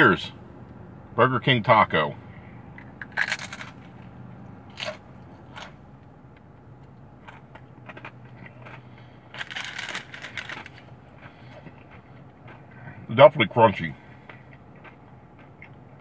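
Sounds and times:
taco shell crunching: 2.8s - 4.1s, 4.7s - 12.9s, 14.1s - 16.0s.

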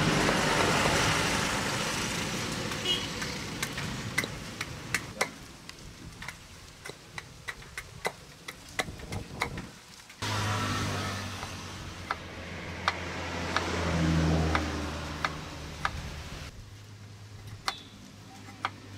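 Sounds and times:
passing vehicle rushing: 0.0s - 2.7s, 10.2s - 16.5s.

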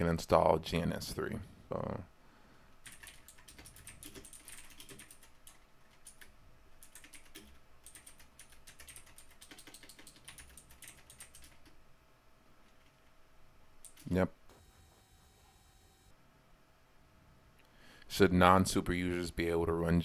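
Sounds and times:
faint keyboard typing: 2.8s - 11.8s, 12.6s - 13.1s, 13.8s - 15.0s.

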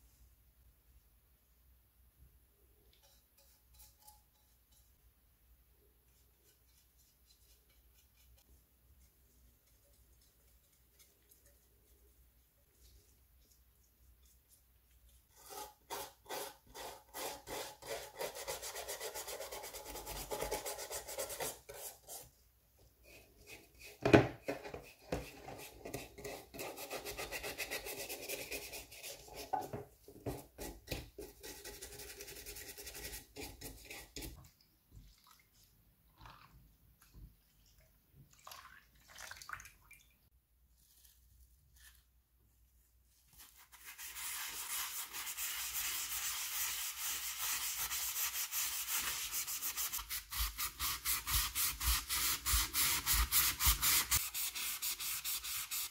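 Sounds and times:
toothbrush scrubbing metal: 6.1s - 22.3s.

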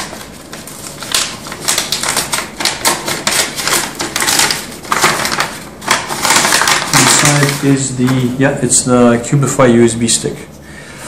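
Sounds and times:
paper envelope tearing: 0.0s - 8.3s.

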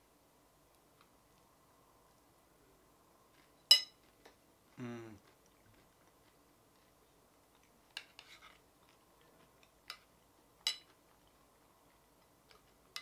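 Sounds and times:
metal spoon clinking on ceramic bowl: 3.7s - 4.0s, 10.6s - 10.9s.

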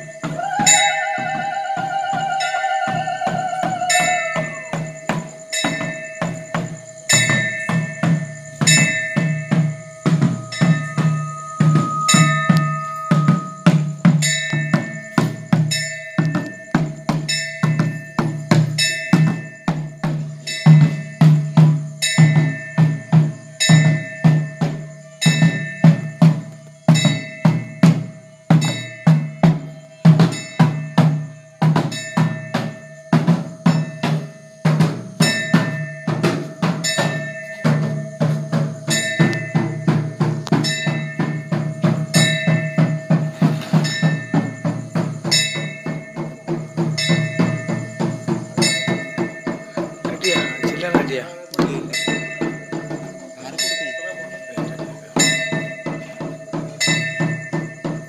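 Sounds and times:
drums beaten fast: 0.0s - 58.0s
metal percussion ringing: 0.0s - 58.0s.

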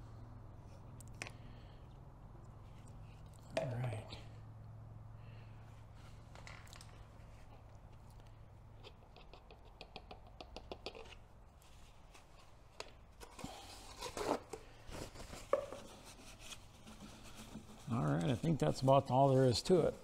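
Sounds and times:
paper towel rubbing: 14.2s - 20.0s.

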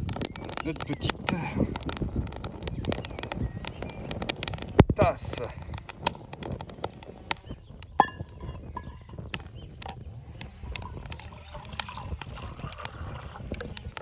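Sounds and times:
wood fire crackling and popping: 0.0s - 14.0s
metal mug clinking on log: 8.0s - 9.2s
water pouring into mug: 10.8s - 14.0s.

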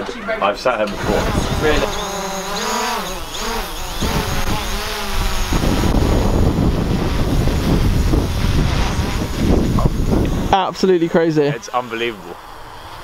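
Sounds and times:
drone propeller whine: 1.0s - 10.6s
wind buffeting microphone: 1.0s - 10.8s.

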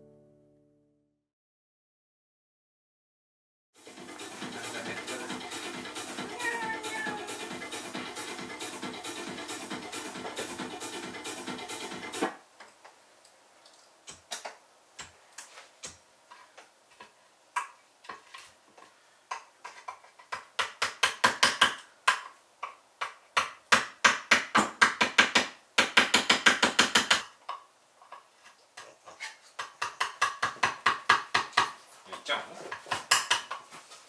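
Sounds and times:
hand tool scraping wood: 18.0s - 19.0s.

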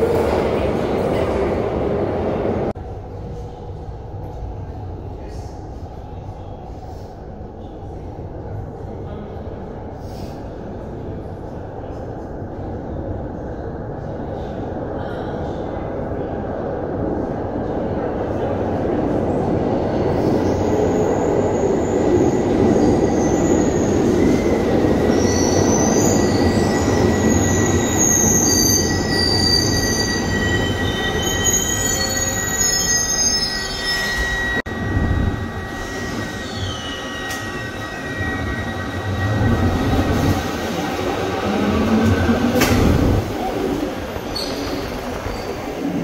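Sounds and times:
train rising whine: 20.8s - 46.0s
high-pitched wheel squeals: 25.1s - 40.4s
train wheels rumbling on rail: 34.8s - 46.0s.

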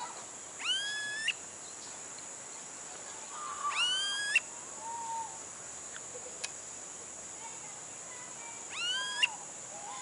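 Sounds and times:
high insect drone: 0.0s - 10.0s
bird whining call: 0.6s - 1.4s, 3.6s - 5.4s, 8.7s - 9.4s.

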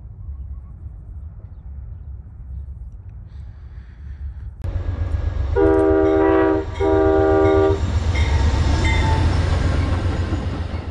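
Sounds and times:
moving train rumble: 0.0s - 10.9s
locomotive air horn blasts: 5.6s - 7.8s.

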